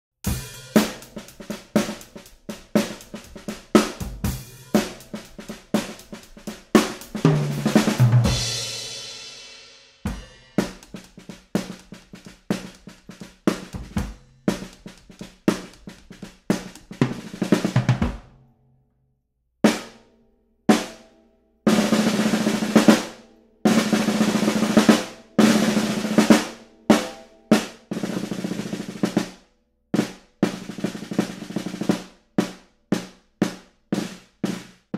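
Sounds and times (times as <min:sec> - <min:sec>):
drum kit playing: 0:00.2 - 0:18.4, 0:19.6 - 0:20.0, 0:20.7 - 0:21.0, 0:21.7 - 0:29.4, 0:30.0 - 0:34.9
snare rolls: 0:10.6 - 0:18.3.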